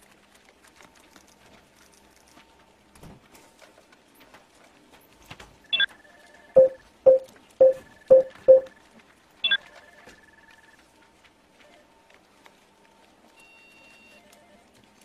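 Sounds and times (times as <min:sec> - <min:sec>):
faint steady tone: 0:05.8 - 0:08.8
short low beeps: 0:06.6 - 0:08.8.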